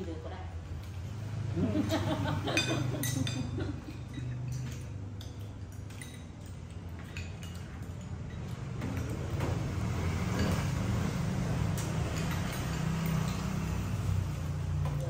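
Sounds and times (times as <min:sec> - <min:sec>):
spoons clinking against bowls: 0:02.4 - 0:09.4, 0:10.2 - 0:15.0.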